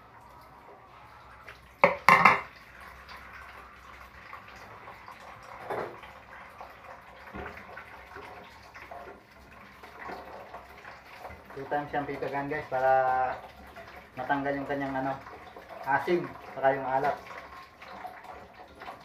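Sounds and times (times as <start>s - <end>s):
ceramic plate clattering: 1.8s - 2.5s
knocks and splashes in sink: 1.8s - 2.5s, 7.3s - 7.7s
tap running into sink: 1.8s - 2.5s, 7.3s - 7.7s.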